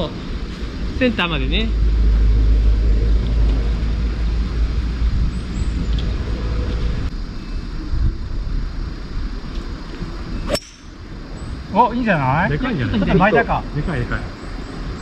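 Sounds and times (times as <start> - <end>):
wind on microphone: 2.2 - 11.8
golf club striking ball: 10.5 - 11.0.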